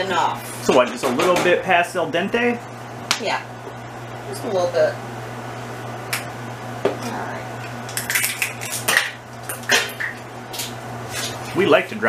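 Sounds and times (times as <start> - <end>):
kitchenware clattering: 7.9 - 10.2.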